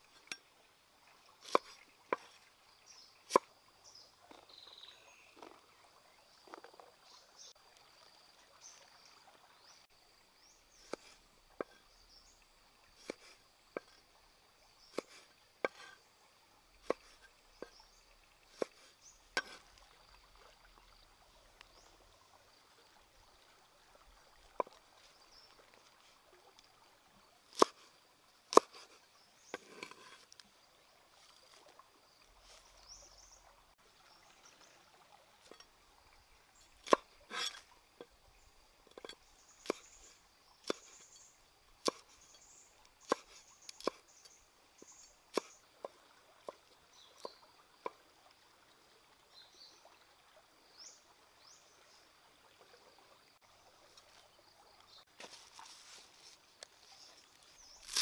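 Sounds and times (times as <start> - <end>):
cleaver chopping on wooden board: 1.4 - 2.3, 14.9 - 16.0, 16.8 - 17.7, 28.5 - 28.9, 41.8 - 42.0, 43.0 - 44.0.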